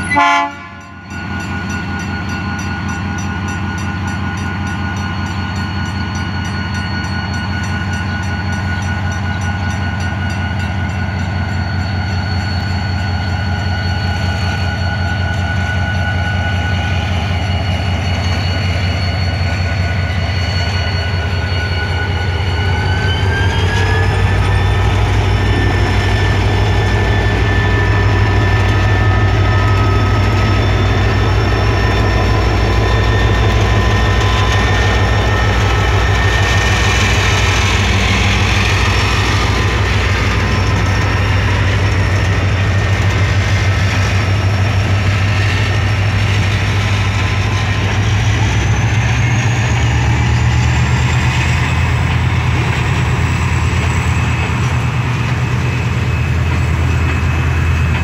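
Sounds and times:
engine whine: 14.2s - 58.0s.

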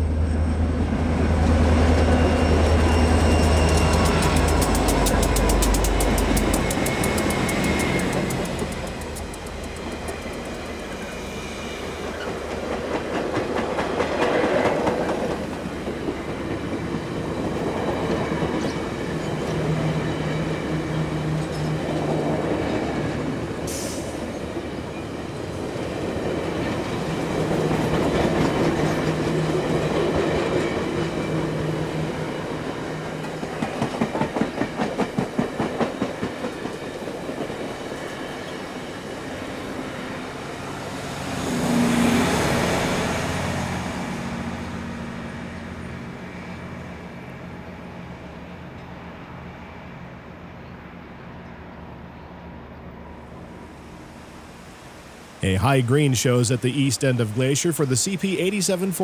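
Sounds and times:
train coaches rolling past: 0.0s - 59.0s
wheels clicking over rail joints: 3.8s - 10.7s.

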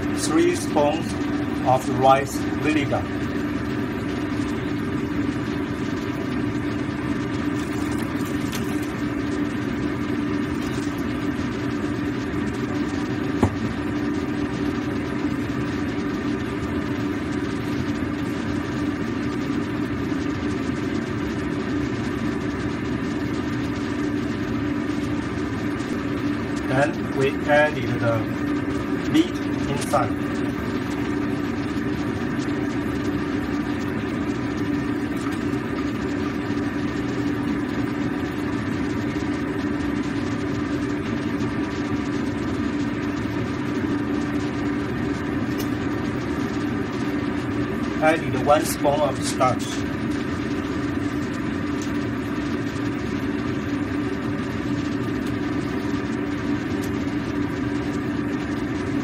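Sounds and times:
low droning hum: 0.0s - 59.0s
soup boiling: 6.9s - 14.7s.

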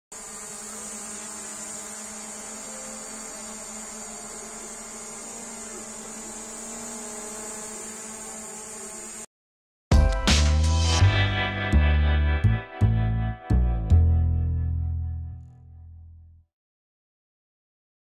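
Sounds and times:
drone propellers buzzing: 0.2s - 9.2s.

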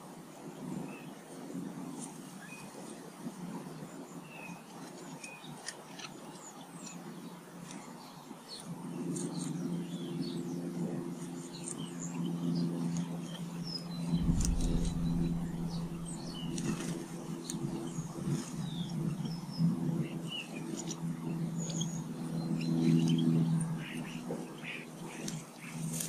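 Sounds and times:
small birds chirping: 4.1s - 26.0s
steady low hum: 10.4s - 25.9s.

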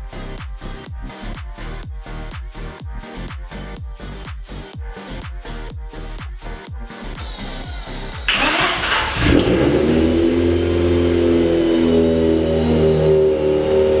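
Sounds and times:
car engine idling: 7.7s - 14.0s
rotary engine cranking: 8.3s - 10.1s.

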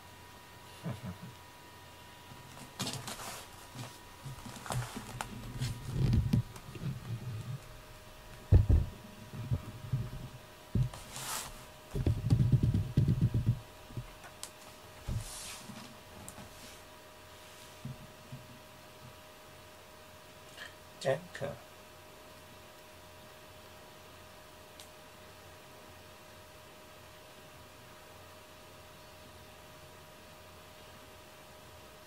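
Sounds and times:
soft thumps: 8.5s - 11.0s
cat purring: 12.0s - 13.6s.

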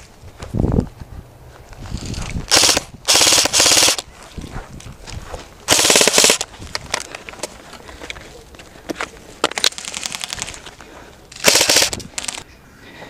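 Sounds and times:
airsoft gun bursts: 2.5s - 4.0s, 5.7s - 6.5s, 9.6s - 10.6s, 11.3s - 12.4s.

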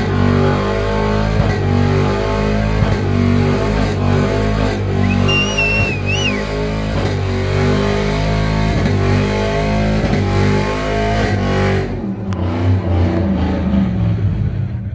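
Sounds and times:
car engine revving: 0.0s - 14.9s
spinning tyres squealing: 2.1s - 7.3s.

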